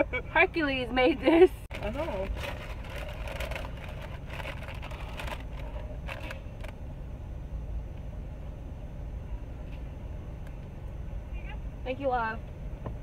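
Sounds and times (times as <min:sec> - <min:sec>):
car engine humming: 0:00.0 - 0:13.0
rustles and clicks: 0:01.7 - 0:06.8.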